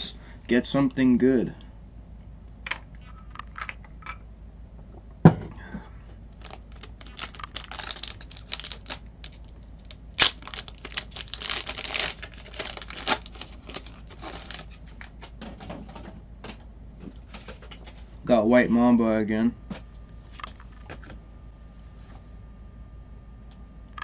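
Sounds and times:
single thump: 5.2s - 5.6s
wrapper crinkling and tearing: 6.3s - 15.3s.

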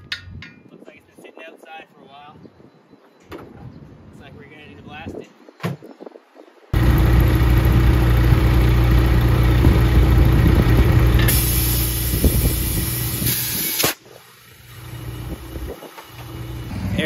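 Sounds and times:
engine hum: 6.8s - 13.3s, 13.9s - 17.0s
compressed air rushing into tire: 11.2s - 14.0s.

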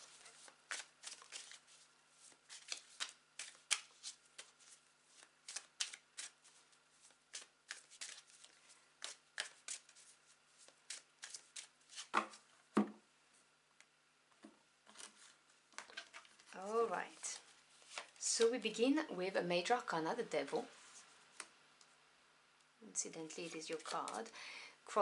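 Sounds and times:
cards being shuffled by hand: 0.0s - 12.4s, 14.9s - 18.5s, 23.3s - 24.3s.

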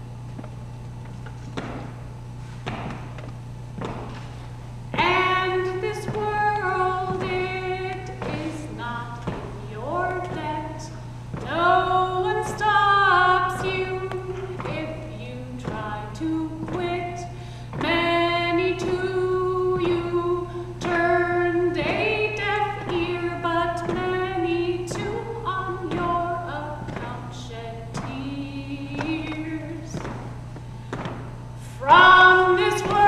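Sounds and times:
woman singing unaccompanied: 4.9s - 30.3s, 31.6s - 33.0s.

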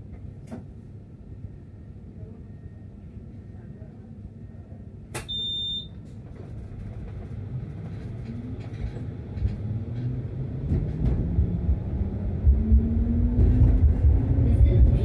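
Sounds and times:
short high beep: 5.3s - 5.9s
tram wheels rumbling on rails: 6.2s - 15.0s.

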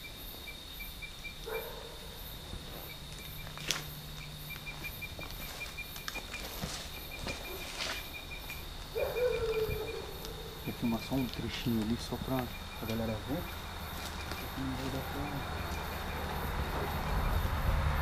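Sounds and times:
crickets trilling: 0.0s - 18.0s
pulsing insect chirp: 0.0s - 18.0s
footsteps on dry leaves: 2.4s - 16.4s.

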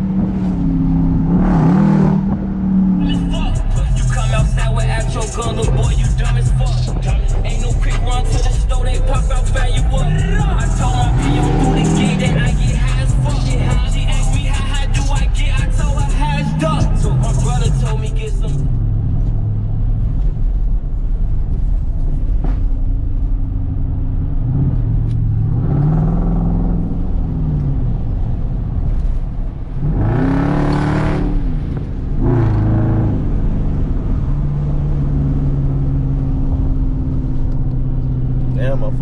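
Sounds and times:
car engine revving: 0.0s - 39.0s.

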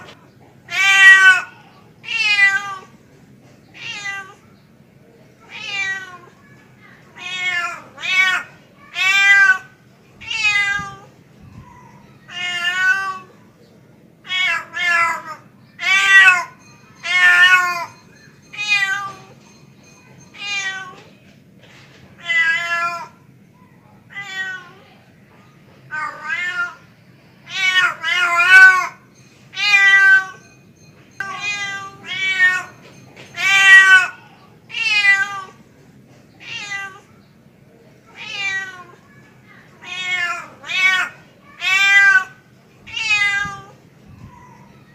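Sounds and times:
cat meowing: 3.8s - 4.4s, 7.2s - 11.1s, 24.1s - 24.8s, 25.9s - 26.8s, 31.2s - 32.8s, 36.4s - 37.1s, 38.2s - 39.0s, 39.8s - 43.8s.

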